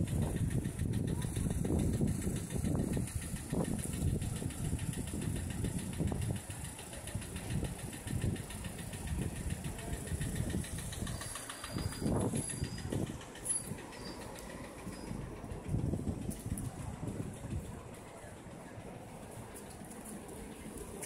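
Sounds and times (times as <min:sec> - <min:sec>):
vehicle engine running: 0:00.0 - 0:21.0.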